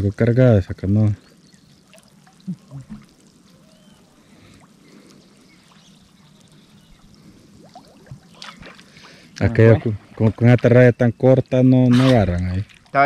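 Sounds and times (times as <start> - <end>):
water trickling and lapping: 0.0 - 13.0
small ticks: 1.2 - 9.4.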